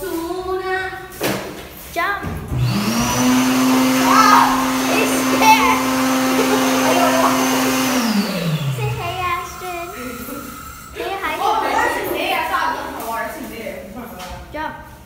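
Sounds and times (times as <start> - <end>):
electric hand dryer running: 2.5 - 12.2.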